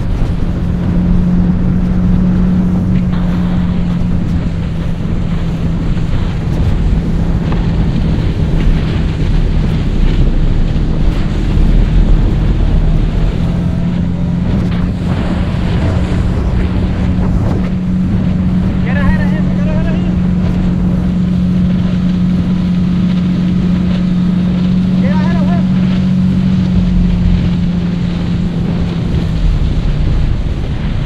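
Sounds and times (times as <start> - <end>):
outboard motor running: 0.0 - 31.0
water rushing past hull: 0.0 - 31.0
wind buffeting microphone: 0.0 - 31.0.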